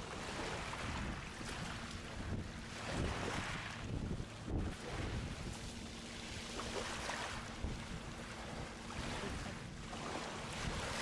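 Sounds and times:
wind buffeting microphone: 0.1s - 11.0s.

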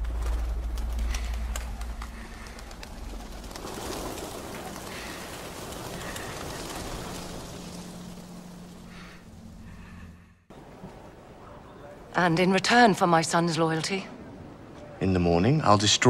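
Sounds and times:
pigeon wingbeats: 0.0s - 9.9s.

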